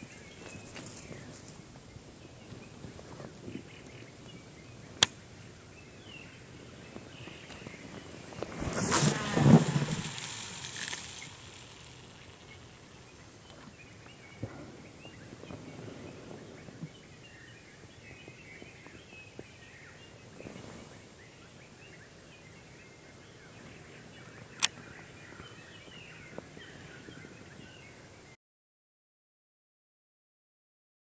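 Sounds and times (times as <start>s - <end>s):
faint high chirps: 6.9s - 14.5s
fishing reel click: 9.0s - 13.0s.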